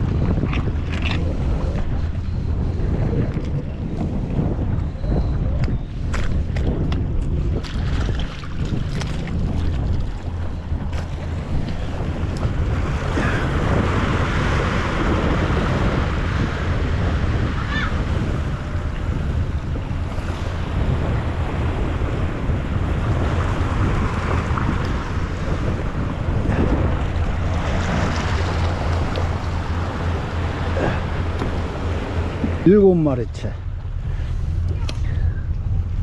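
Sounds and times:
wind buffeting microphone: 0.0 - 36.0
waves washing over rocks: 7.6 - 33.4.

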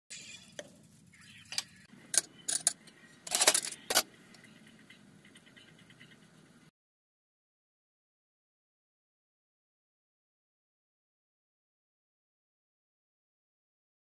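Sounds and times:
metal spoons clinking: 1.5 - 4.1.

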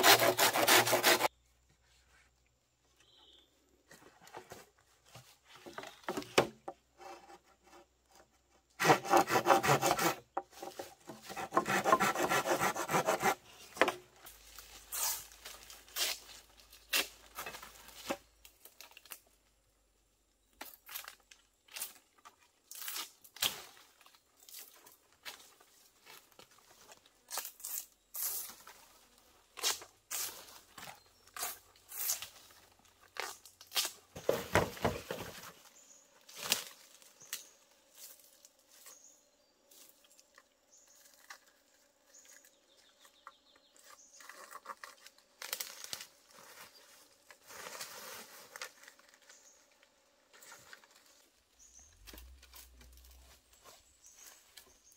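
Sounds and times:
dry bamboo leaves crackling: 14.2 - 19.4, 43.8 - 54.8.

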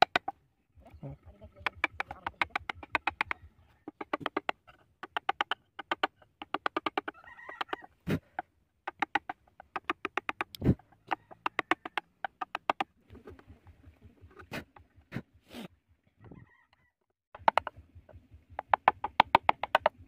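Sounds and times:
chisel cutting into wood: 1.7 - 4.5.

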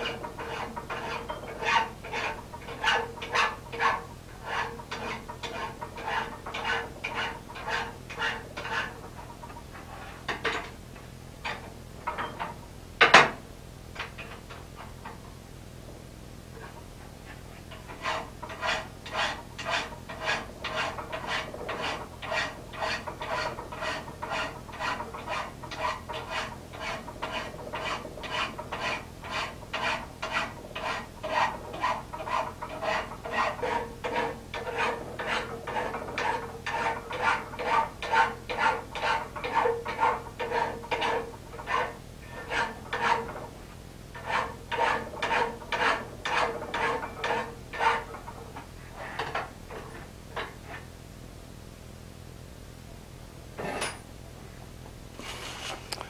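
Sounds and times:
hand file rasping on steel: 0.0 - 10.2, 17.6 - 43.4, 44.2 - 49.4.

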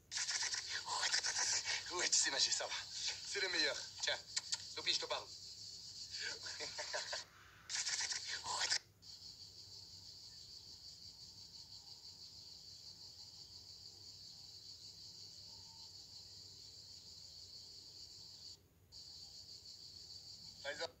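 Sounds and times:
insect chorus: 0.0 - 21.0.

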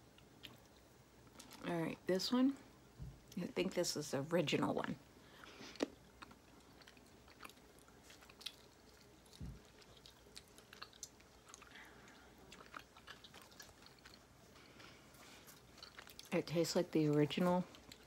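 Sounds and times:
chewing with mouth clicks: 0.1 - 1.6, 5.4 - 18.0.

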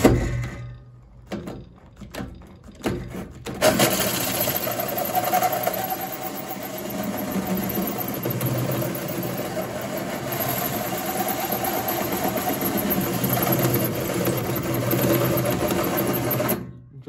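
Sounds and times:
electric drill cutting sheet metal: 3.6 - 16.6.

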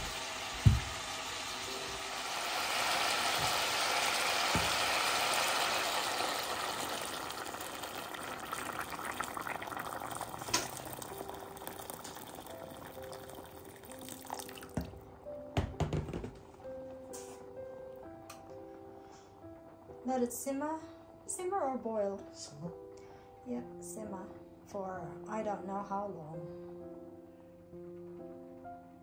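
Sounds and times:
water pouring into a pot: 0.0 - 15.1.

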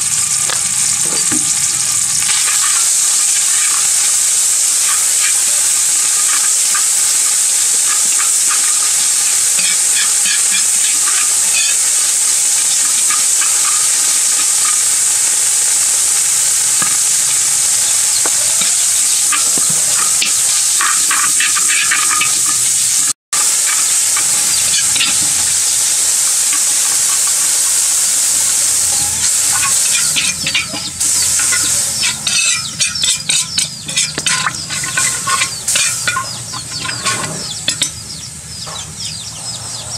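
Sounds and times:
paste sizzling in hot oil: 0.0 - 38.6
metal ladle scraping wok: 17.0 - 22.7, 28.8 - 38.0.

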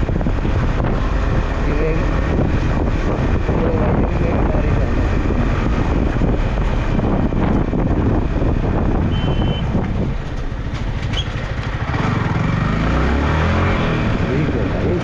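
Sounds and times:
motorcycle engine running: 0.0 - 15.0
wind and road noise: 0.0 - 15.0
short high beep: 9.1 - 9.7.

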